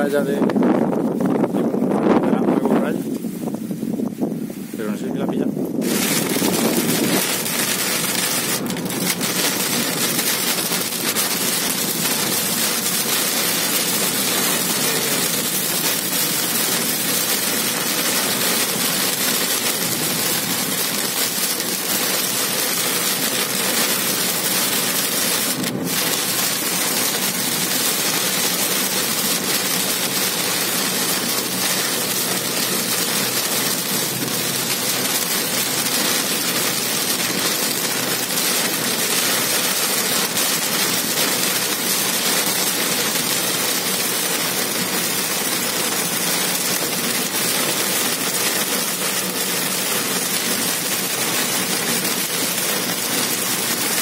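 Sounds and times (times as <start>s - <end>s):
car engine and road noise: 5.4s - 39.6s
heavy rain on car: 5.7s - 54.0s.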